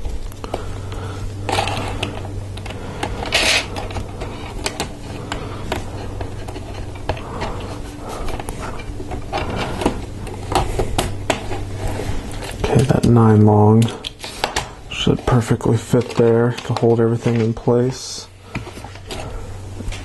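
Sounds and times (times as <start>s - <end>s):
steady low hum: 0.0s - 20.0s
plastic parts clicking and rattling: 1.5s - 7.6s, 13.8s - 17.8s.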